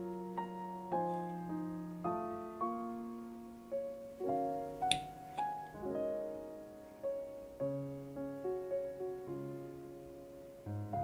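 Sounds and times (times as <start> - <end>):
gentle solo piano: 0.0 - 11.0.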